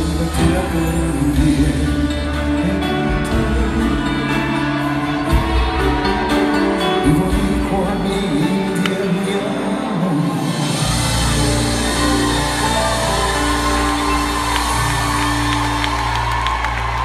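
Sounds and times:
man singing into a microphone: 0.0s - 5.4s, 6.0s - 11.6s
live pop band: 0.0s - 17.0s.

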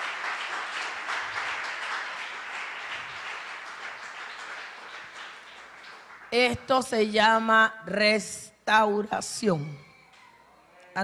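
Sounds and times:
congregation applauding: 0.0s - 6.8s.

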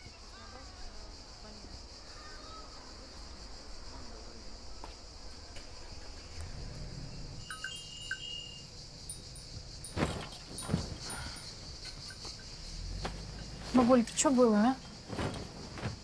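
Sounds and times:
insect buzz: 0.0s - 16.0s
bright chime-like tones: 7.4s - 8.7s.

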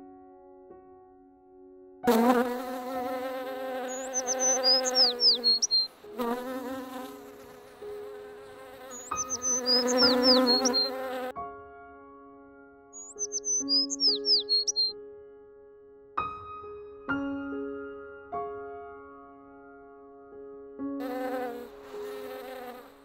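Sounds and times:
bumblebee buzzing: 2.1s - 11.3s, 13.0s - 14.9s, 21.0s - 23.0s
high falling chirps: 3.9s - 5.9s, 8.9s - 11.0s, 13.0s - 14.9s.

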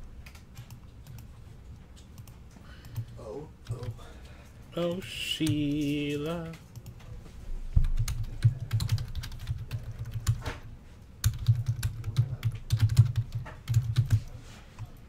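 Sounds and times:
computer keyboard typing: 0.0s - 1.3s, 2.0s - 4.0s, 4.8s - 7.0s, 7.8s - 10.5s, 11.2s - 15.0s.

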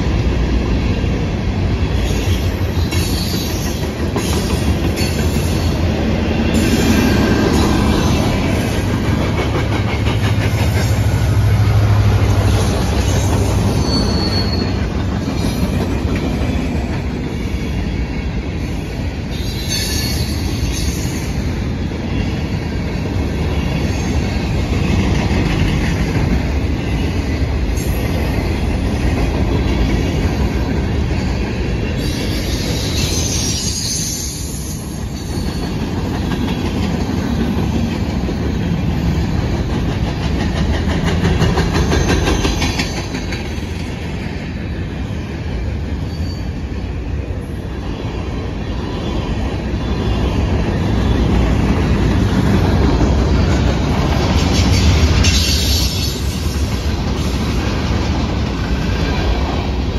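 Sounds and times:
freight train wheels rumbling on rail: 0.0s - 59.9s
high-pitched wheel squeal: 13.6s - 14.8s.

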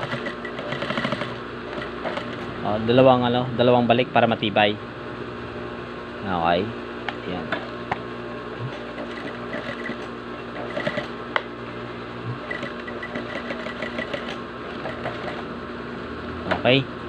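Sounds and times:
sewing machine stitching: 0.0s - 2.5s, 8.9s - 11.1s, 12.5s - 15.4s
steady machine hum: 0.0s - 17.0s.

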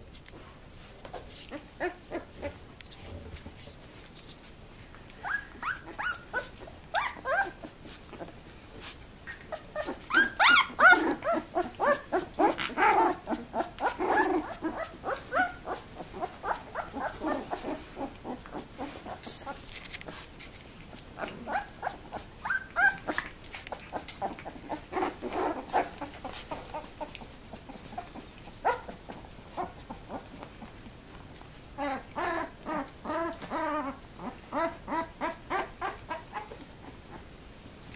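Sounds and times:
puppies whimpering and squeaking: 5.2s - 8.3s, 9.2s - 20.2s, 21.2s - 30.7s, 31.8s - 37.3s.

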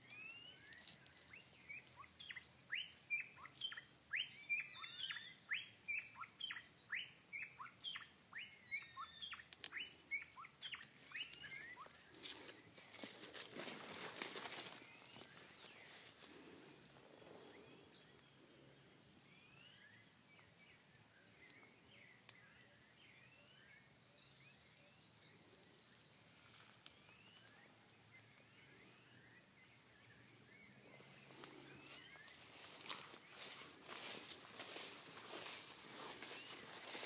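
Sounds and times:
birds chirping: 0.0s - 37.0s
footsteps rustling through grass: 0.1s - 3.8s, 10.6s - 16.6s, 31.3s - 37.0s.

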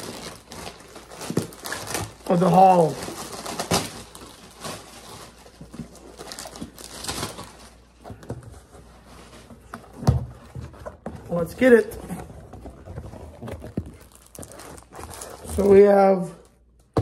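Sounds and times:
cardboard box rustling: 3.2s - 16.1s.

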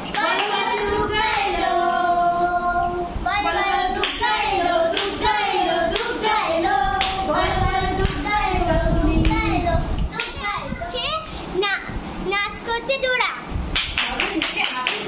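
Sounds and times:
hand claps: 0.0s - 0.6s, 4.9s - 5.2s, 13.7s - 15.0s
girl singing: 0.0s - 11.3s.

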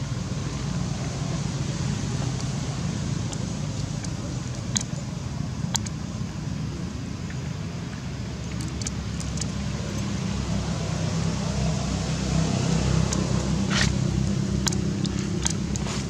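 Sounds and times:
low steady rumbling: 0.0s - 16.0s.

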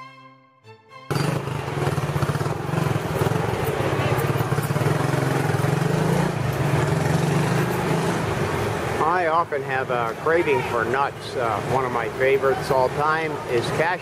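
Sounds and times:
small motorcycle engine running: 1.1s - 9.2s.

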